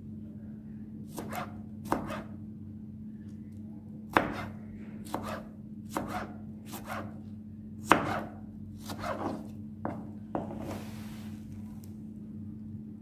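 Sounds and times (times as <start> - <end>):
steady low hum: 0.0 - 13.0
knife slicing a tomato: 1.1 - 2.4, 4.1 - 7.2, 7.8 - 10.8
knife tapping cutting board: 9.0 - 10.6.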